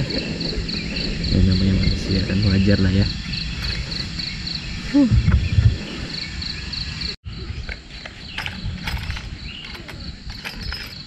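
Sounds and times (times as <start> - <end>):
low rumbling noise: 0.0 - 7.7
crickets chirping: 0.0 - 11.0.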